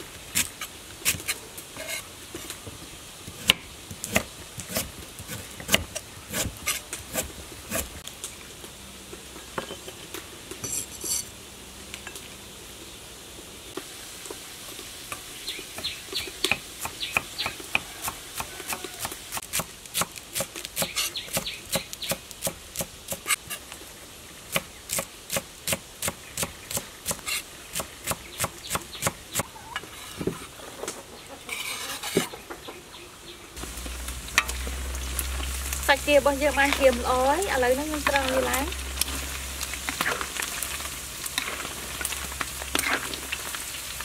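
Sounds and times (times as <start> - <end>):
meat frying and sizzling in oil: 0.0 - 30.2, 33.6 - 44.0.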